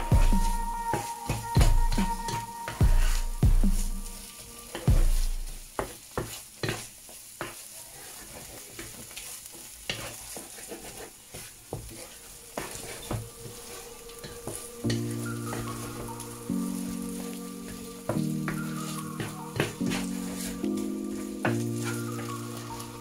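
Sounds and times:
frying sizzle: 0.0s - 23.0s
spatula scraping frying pan: 0.0s - 23.0s
deep thumps: 2.8s - 4.1s, 4.9s - 5.6s.

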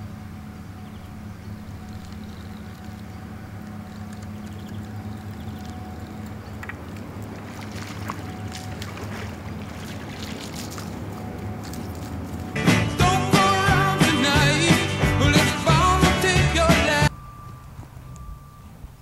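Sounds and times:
motor humming: 0.0s - 14.6s.

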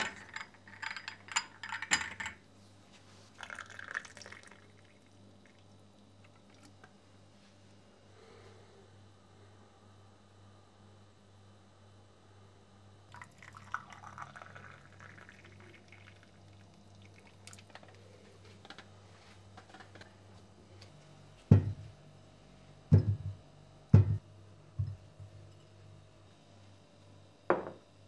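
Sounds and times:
liquid pouring: 3.4s - 6.8s, 13.1s - 18.0s
sharp knocks: 24.0s - 24.2s.

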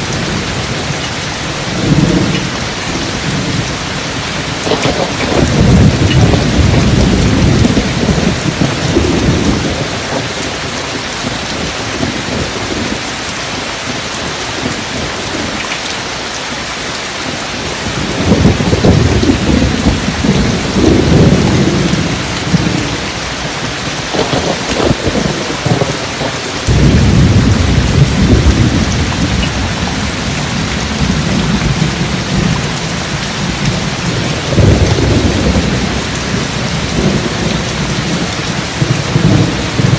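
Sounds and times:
rolling thunder: 0.0s - 13.1s, 17.6s - 39.9s
heavy rain: 0.0s - 39.9s.

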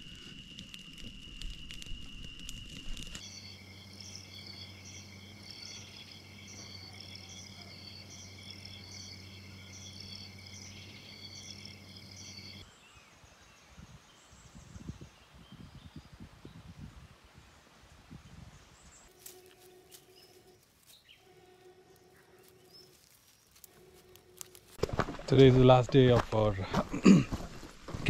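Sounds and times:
campfire crackling: 0.0s - 12.6s, 19.0s - 28.0s
crickets trilling: 0.0s - 12.7s, 19.0s - 26.5s.

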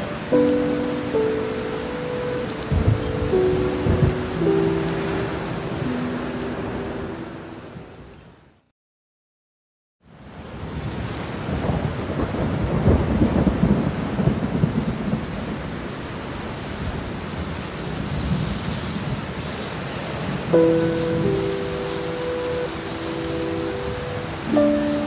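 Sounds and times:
steady rain: 0.0s - 8.7s, 10.0s - 25.0s
thunder rumble: 2.7s - 6.1s, 11.4s - 15.7s.

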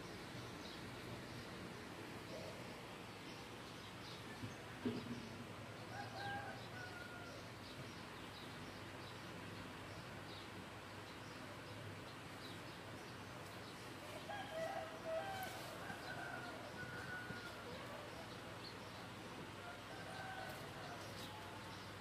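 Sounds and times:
small birds chirping: 0.0s - 22.0s
rooster crowing: 5.9s - 7.5s, 14.1s - 18.2s, 19.6s - 21.8s.

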